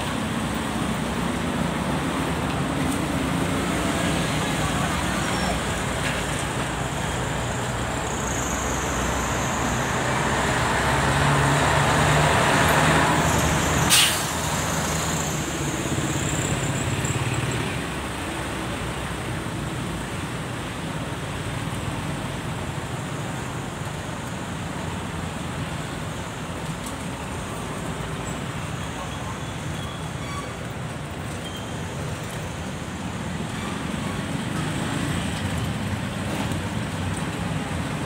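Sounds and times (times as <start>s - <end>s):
steady traffic hum: 0.0s - 38.0s
short sharp hiss: 13.9s - 14.5s.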